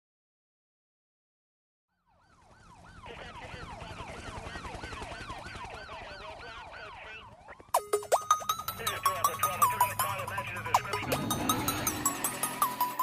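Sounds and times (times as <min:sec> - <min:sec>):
fast yelping siren effect: 0:02.2 - 0:13.0
low steady drone: 0:09.3 - 0:13.0.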